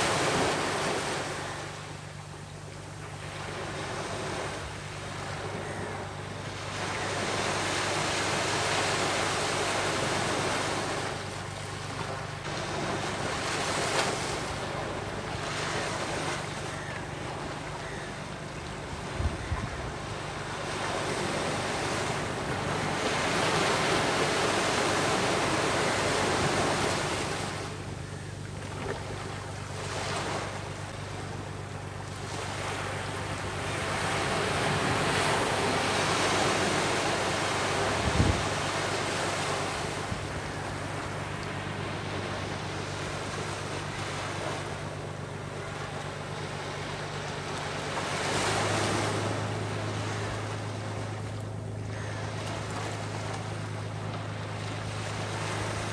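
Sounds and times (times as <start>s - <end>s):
waves breaking on sandy beach: 0.0s - 55.9s.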